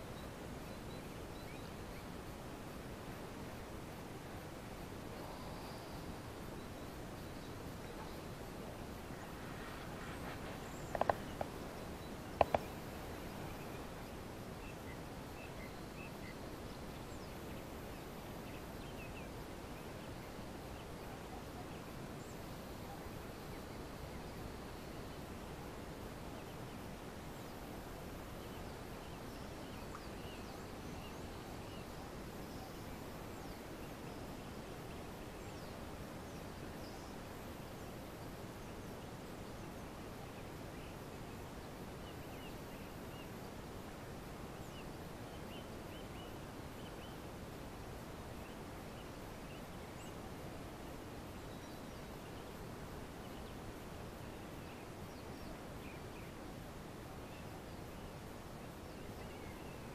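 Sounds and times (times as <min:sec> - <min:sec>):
low background noise: 0:00.0 - 0:59.9
small birds chirping: 0:04.4 - 0:22.4.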